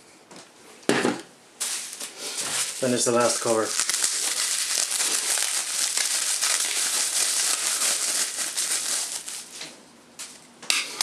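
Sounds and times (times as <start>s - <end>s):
bubble wrap crinkling: 1.6s - 10.4s.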